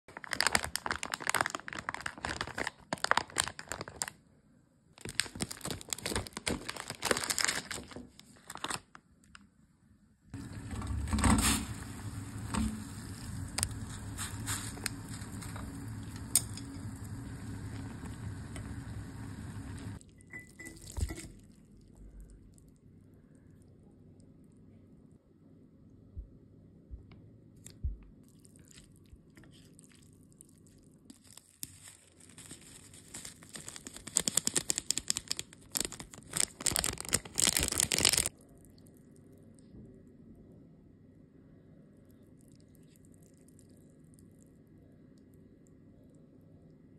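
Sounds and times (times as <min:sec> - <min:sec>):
plastic packet crinkling and tearing: 0:00.1 - 0:04.2, 0:05.0 - 0:09.4, 0:11.2 - 0:19.6, 0:29.5 - 0:38.4
water boiling in a pot: 0:10.4 - 0:20.0.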